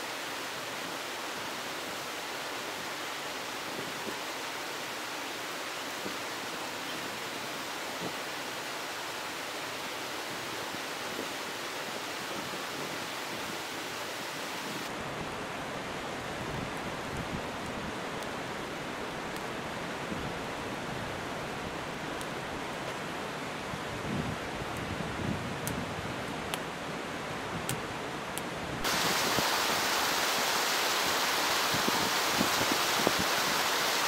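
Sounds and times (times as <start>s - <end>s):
steady rushing noise: 28.8s - 34.0s.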